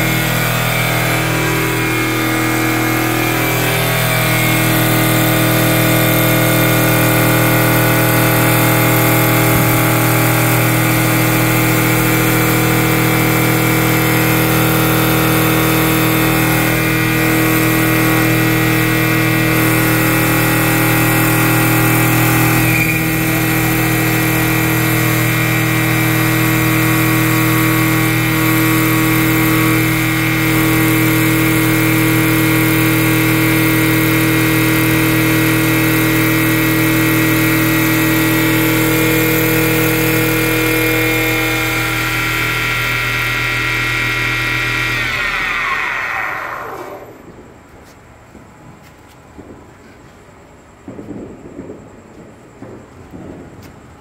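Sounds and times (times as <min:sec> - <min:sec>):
lathe motor hum: 0:00.0 - 0:47.4
hiss of wood being cut: 0:38.3 - 0:47.3.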